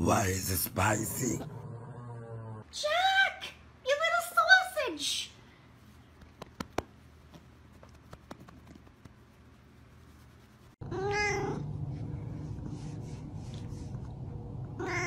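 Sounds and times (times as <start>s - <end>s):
steady low hum: 7.0s - 15.0s
cat meowing: 10.9s - 11.6s, 14.8s - 15.0s.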